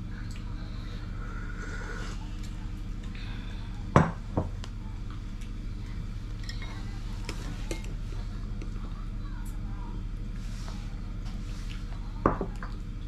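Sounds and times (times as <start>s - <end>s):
steady low hum: 0.0s - 13.0s
teacup knocking on wooden table: 4.0s - 4.5s.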